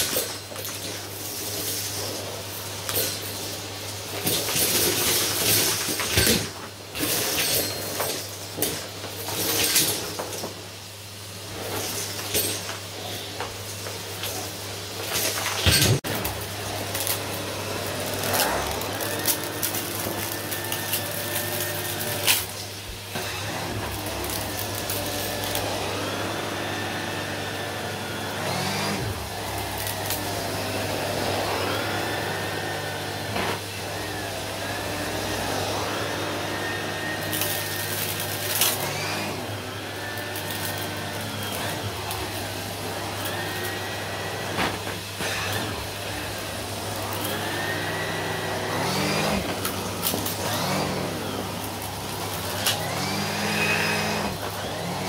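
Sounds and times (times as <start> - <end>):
vacuum cleaner running: 0.0 - 55.0
vacuum head on shag rug: 0.0 - 55.0.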